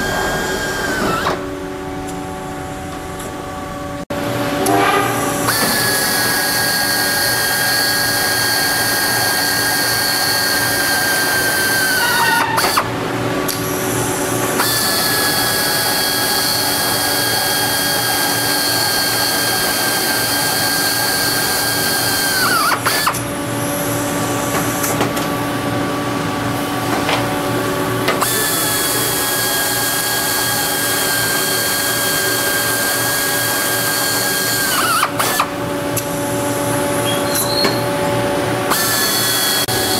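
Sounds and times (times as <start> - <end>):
pneumatic drill whining: 0.0 - 1.6, 5.3 - 12.9, 13.5 - 25.2, 28.0 - 36.3, 36.9 - 38.0, 38.7 - 39.9.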